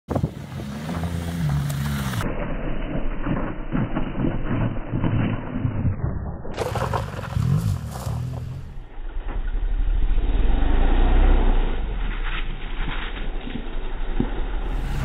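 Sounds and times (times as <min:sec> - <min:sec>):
motorcycle engine revving: 0:00.2 - 0:02.4, 0:14.6 - 0:15.0
tyre sliding on gravel: 0:06.6 - 0:08.8.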